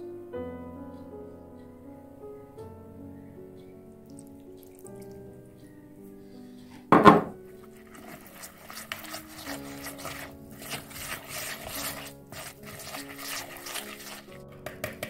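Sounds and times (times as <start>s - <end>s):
soft background music: 0.0s - 15.0s
liquid splashing into a bowl: 4.0s - 5.3s, 7.8s - 14.4s
utensil stirring and scraping bowl: 6.7s - 15.0s.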